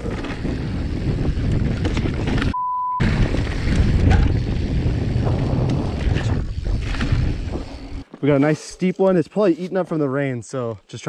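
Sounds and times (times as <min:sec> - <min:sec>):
wind rushing over microphone: 0:00.0 - 0:08.0
bike tyres and frame rattling: 0:00.0 - 0:08.8
censor bleep: 0:02.6 - 0:03.0.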